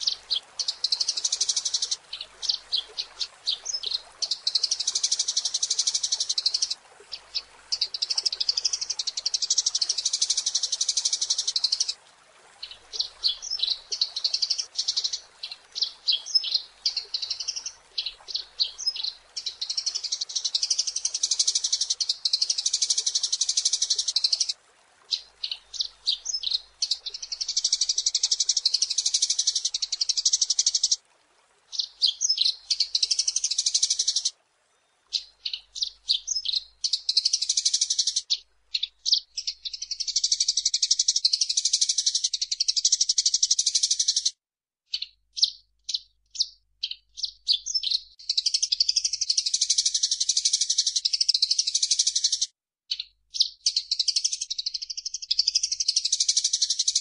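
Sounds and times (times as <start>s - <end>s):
sparrow chirping: 44.9s - 57.0s.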